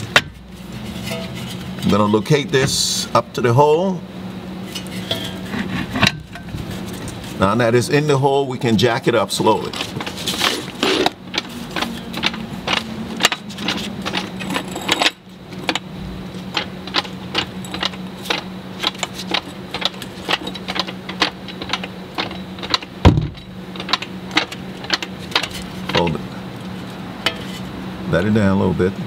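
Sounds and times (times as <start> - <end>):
low steady hum: 0.0 - 29.0
jack clicking: 9.5 - 26.2
heavy metal clunk: 9.7 - 26.2, 27.2 - 27.7.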